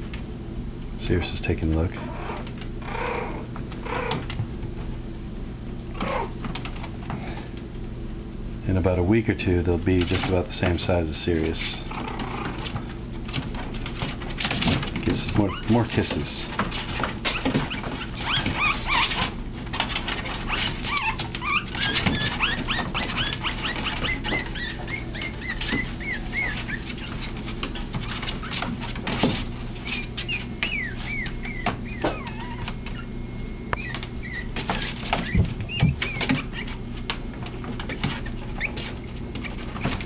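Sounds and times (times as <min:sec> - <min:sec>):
puppies squeaking: 0:01.9 - 0:04.3, 0:05.9 - 0:06.4, 0:11.8 - 0:13.0, 0:15.1 - 0:40.0
paws scratching plastic pool: 0:09.1 - 0:40.0.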